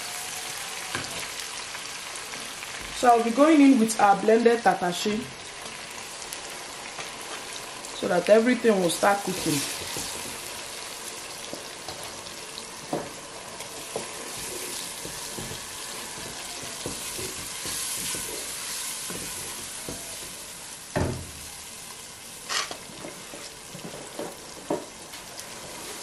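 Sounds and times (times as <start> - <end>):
onions sizzling in oil: 0.0 - 26.0
wooden spoon knocking on pot: 13.9 - 18.3, 19.1 - 20.3.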